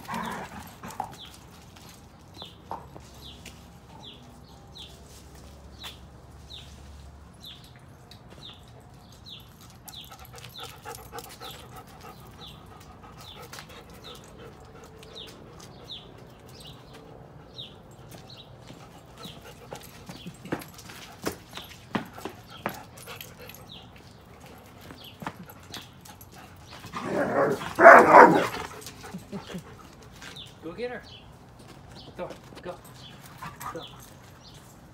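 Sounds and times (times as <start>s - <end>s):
dogs panting: 8.8s - 30.6s, 32.9s - 34.9s.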